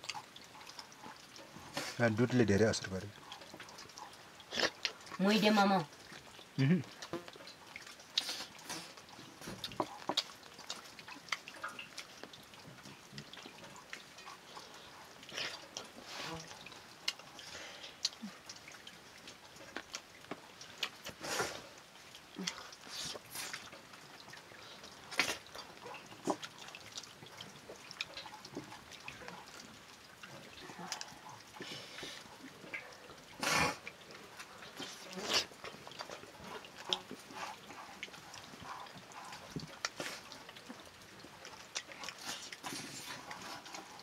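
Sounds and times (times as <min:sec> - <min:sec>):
wet chewing and smacking: 0:00.0 - 0:44.0.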